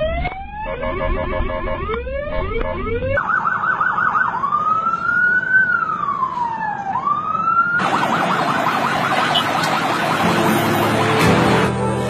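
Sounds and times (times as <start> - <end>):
ambulance siren warble: 0.0 - 11.7
ambulance siren yelp and wail: 0.0 - 11.7
traffic noise: 1.6 - 12.0.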